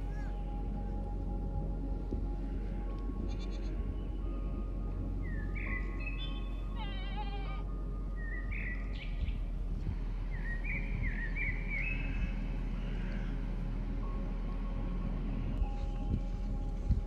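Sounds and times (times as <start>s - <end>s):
steady low rumble: 0.0s - 17.0s
goats bleating: 3.3s - 3.8s, 6.8s - 7.6s.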